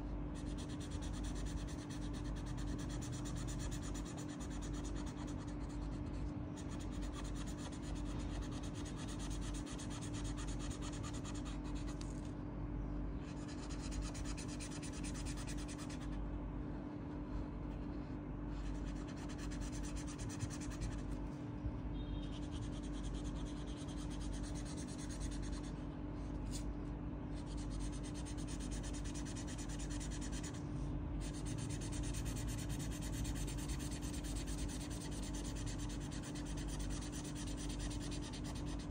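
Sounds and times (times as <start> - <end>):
steady low hum: 0.0 - 38.9
marker rubbing on paper: 0.4 - 12.1, 13.3 - 16.1, 22.4 - 25.7, 27.4 - 30.6, 31.2 - 38.9.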